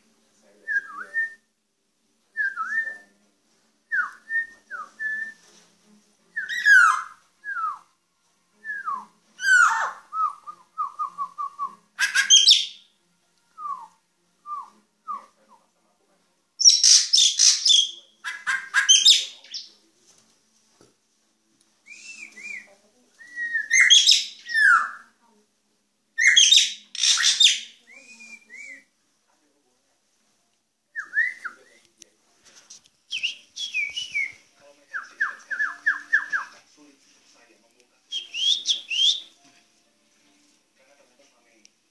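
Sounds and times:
bird whistling: 6.4s - 7.8s, 9.4s - 12.8s, 23.3s - 25.0s, 26.2s - 28.8s, 33.1s - 34.4s, 35.0s - 36.5s, 38.1s - 39.3s
bird chattering: 12.0s - 12.7s, 16.6s - 19.6s
bird singing clear whistles: 21.9s - 25.0s, 26.2s - 28.9s, 33.1s - 34.4s, 38.1s - 39.3s.

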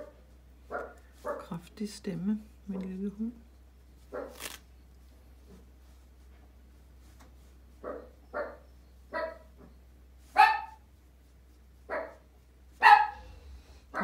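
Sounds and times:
small dog barking: 0.7s - 1.5s, 4.1s - 4.4s, 7.8s - 9.5s, 10.4s - 10.8s, 11.9s - 12.2s, 12.8s - 13.3s.

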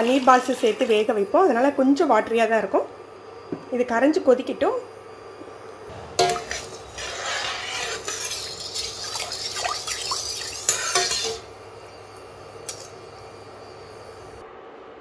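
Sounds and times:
ladle stirring liquid in pot: 6.2s - 11.5s
ladle clinking against metal pot: 8.0s - 11.5s.

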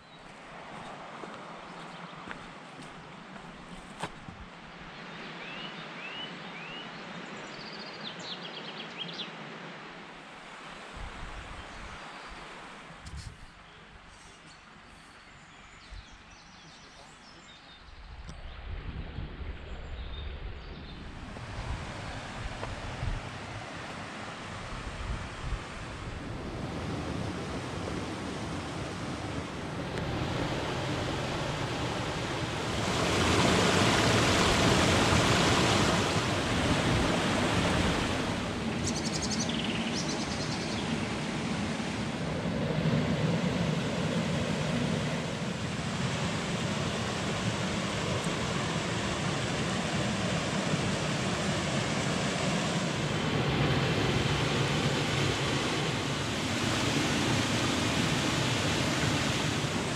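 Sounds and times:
stream water rushing over stones: 30.0s - 39.2s, 54.1s - 59.9s.

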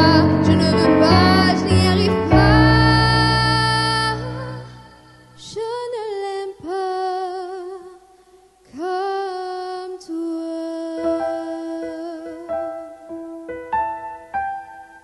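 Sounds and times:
solo voice singing with vibrato: 0.0s - 13.1s
soft accompaniment: 9.8s - 15.0s.

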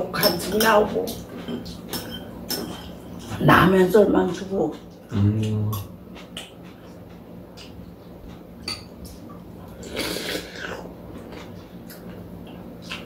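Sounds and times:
person slurping soup: 9.8s - 10.9s.

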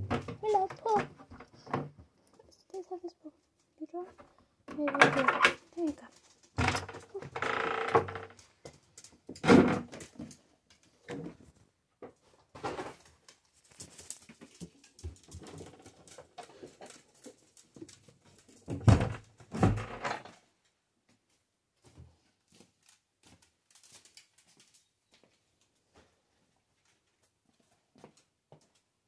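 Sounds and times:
dogs scuffling: 13.0s - 18.7s.

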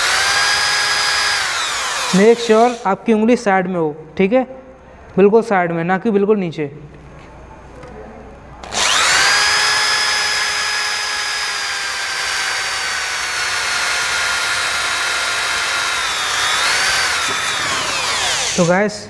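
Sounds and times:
electric drill boring through metal: 0.0s - 2.9s, 8.6s - 18.7s.

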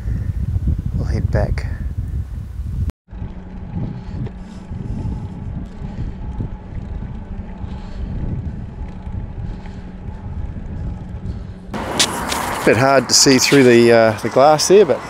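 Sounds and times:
wind buffeting microphone: 0.0s - 15.0s
low hum: 1.8s - 13.2s.

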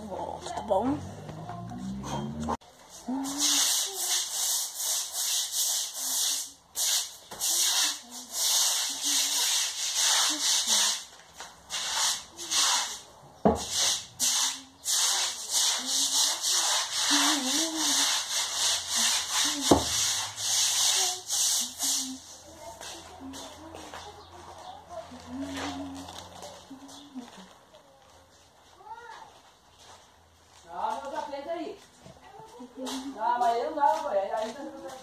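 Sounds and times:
floor brush scrubbing wet floor: 3.2s - 22.8s.

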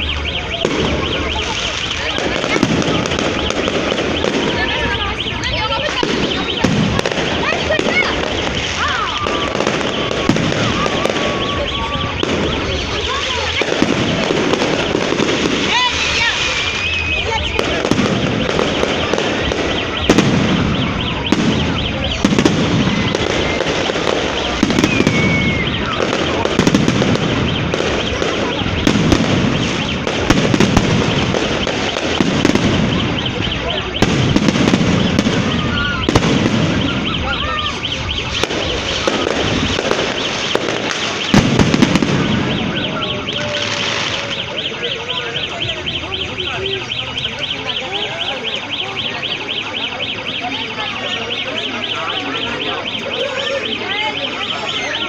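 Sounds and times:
fireworks crackling: 0.0s - 55.0s
repeating high chirp: 0.0s - 55.0s.

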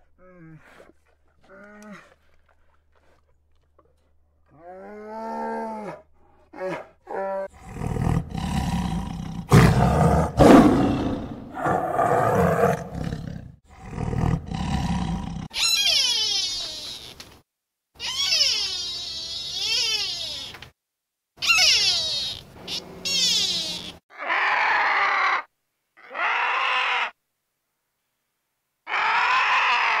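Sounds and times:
large animal harsh calls: 21.4s - 27.2s.

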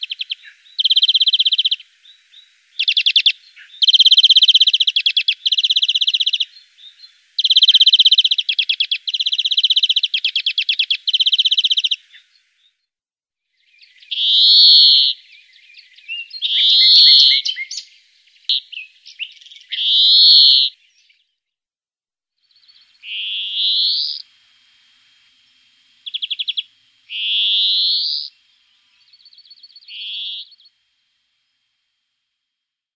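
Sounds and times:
songbird singing trills: 0.0s - 12.8s, 13.6s - 21.4s, 22.4s - 24.3s, 25.4s - 30.8s.

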